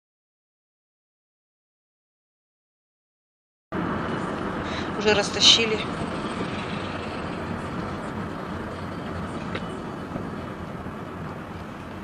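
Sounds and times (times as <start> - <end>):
car road and engine noise: 3.7 - 12.0.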